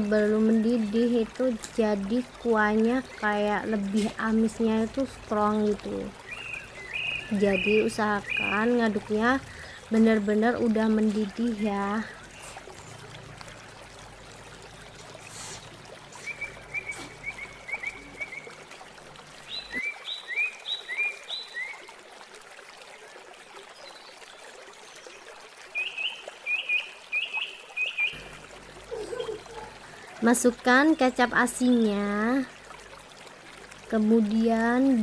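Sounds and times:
soup boiling and bubbling: 0.0 - 25.8, 27.8 - 30.8, 31.5 - 35.0
bird chirping: 6.3 - 8.7.

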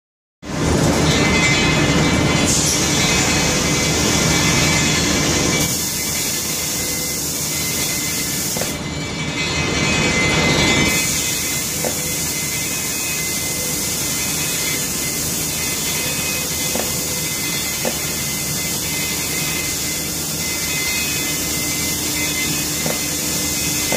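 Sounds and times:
spray booth rushing hiss: 5.6 - 8.8, 10.9 - 23.9.

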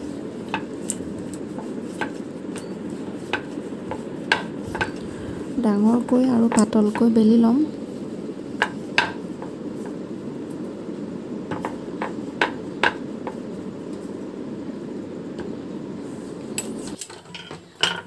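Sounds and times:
rolling pin rolling dough: 0.0 - 18.0.

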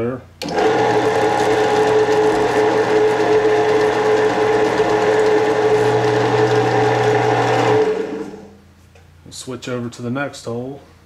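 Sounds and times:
drill cutting into metal: 0.4 - 8.5
drill press humming: 0.4 - 8.6.

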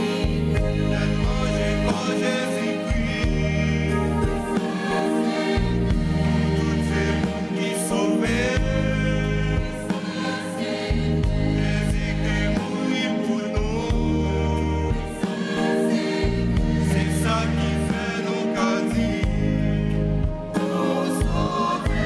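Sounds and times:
choir singing a hymn: 0.0 - 22.0
held low bass notes: 0.3 - 1.9, 2.9 - 4.6, 11.0 - 12.6.

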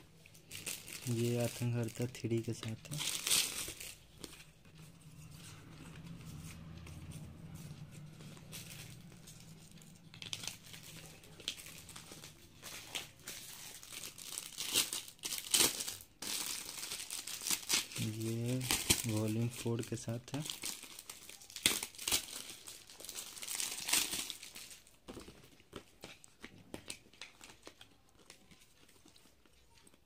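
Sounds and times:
plastic packets crinkling: 0.0 - 30.0
faint low hum: 3.7 - 13.1.

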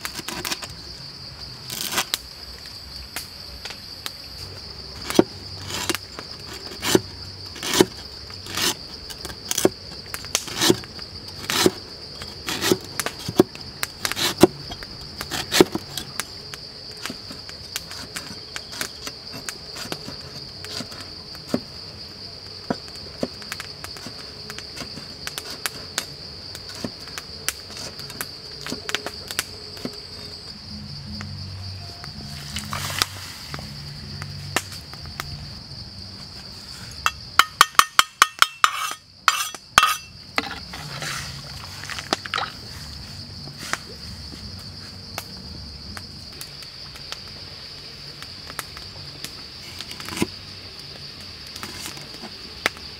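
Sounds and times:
high-pitched insect drone: 28.0 - 37.8.

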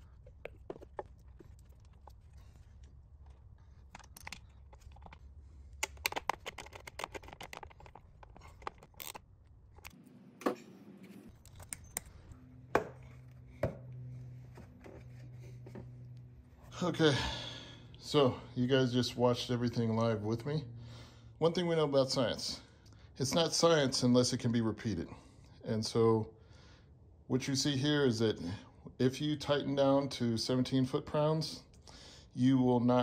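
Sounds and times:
engine parts clicking and knocking: 3.2 - 9.9.

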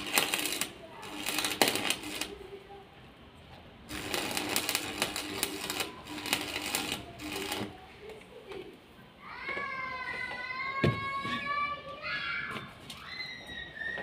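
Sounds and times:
welding arc crackling: 0.0 - 2.6, 3.9 - 7.9
steady hum: 0.0 - 8.1.

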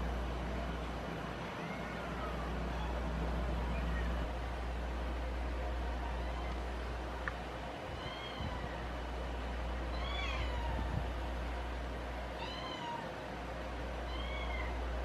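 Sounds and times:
low steady rumble: 0.0 - 15.0
cat meowing: 6.0 - 6.6, 8.0 - 8.8, 9.9 - 11.0, 12.4 - 13.1, 14.1 - 14.8.

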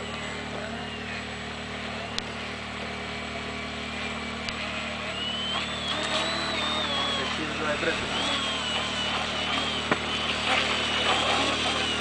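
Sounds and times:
electric motor and propeller whining: 0.0 - 12.0
low steady hum: 0.0 - 12.0.

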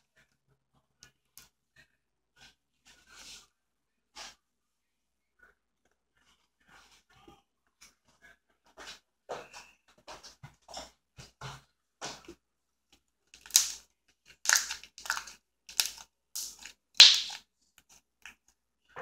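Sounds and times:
slime sticky pops and clicks: 13.4 - 13.8, 14.5 - 17.4.

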